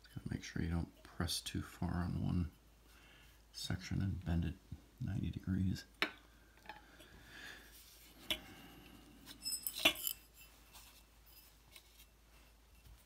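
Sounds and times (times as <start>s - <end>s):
small metal parts clinking: 9.3s - 10.6s.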